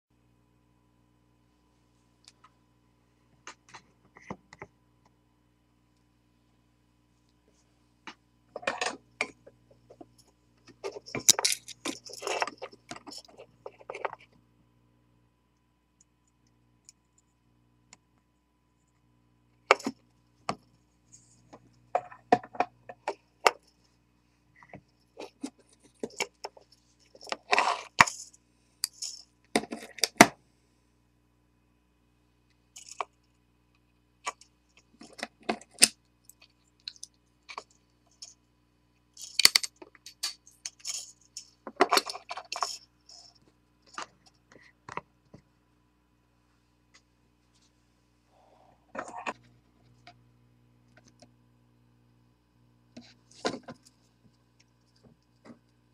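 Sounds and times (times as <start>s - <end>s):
faint low hum: 0.1s - 55.9s
clicks and rattles of wire handling: 8.6s - 14.3s, 32.8s - 33.2s, 39.2s - 45.4s.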